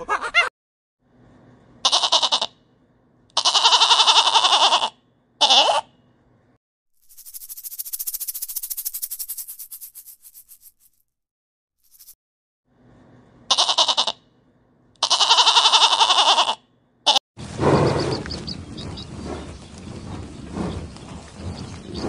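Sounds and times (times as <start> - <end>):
goat bleating: 1.8 - 2.6, 3.4 - 5.9, 13.5 - 14.2, 15.0 - 17.2
rapid high pulsing sound: 7.0 - 11.0.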